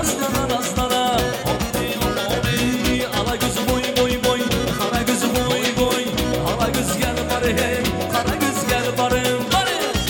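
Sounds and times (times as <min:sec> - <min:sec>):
loud dance music: 0:01.1 - 0:09.9.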